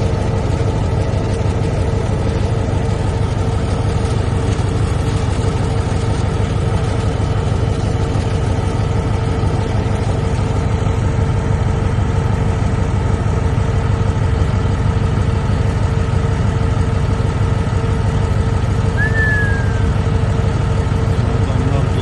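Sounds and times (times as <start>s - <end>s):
bulldozer diesel engine running: 0.0s - 22.0s
high whistle falling in pitch: 19.0s - 20.0s.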